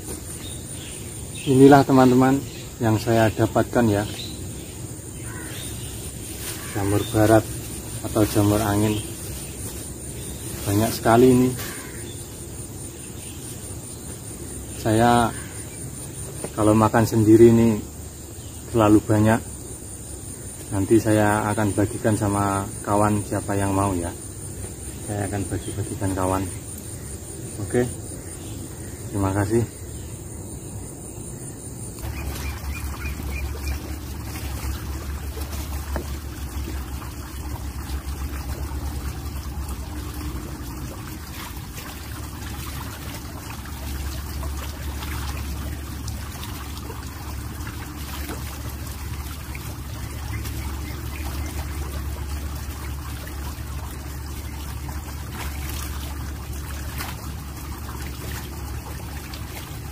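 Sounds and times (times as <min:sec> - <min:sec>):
water trickling and splashing: 0:00.0 - 0:59.9.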